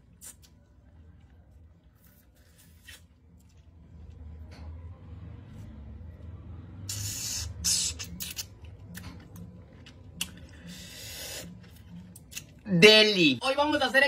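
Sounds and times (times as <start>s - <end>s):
lip smacks and clicks: 0.0s - 0.6s, 6.9s - 10.6s
man sucking air: 6.9s - 8.0s.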